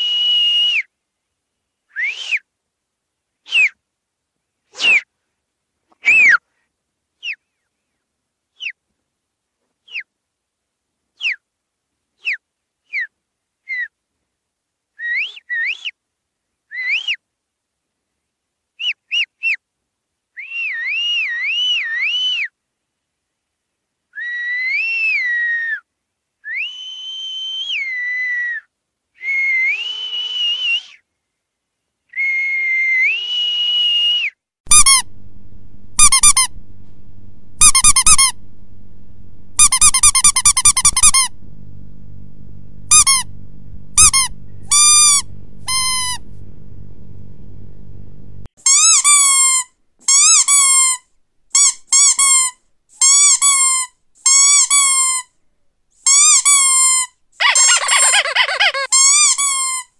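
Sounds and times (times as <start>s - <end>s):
squeaky dog toy squeezed: 34.7s - 35.1s, 36.0s - 36.6s, 37.6s - 38.4s, 39.6s - 41.3s, 42.9s - 43.3s, 44.0s - 46.2s, 48.6s - 55.3s, 56.0s - 59.9s
steady low hum: 34.7s - 48.5s
whistle notes and trills: 36.0s - 46.3s.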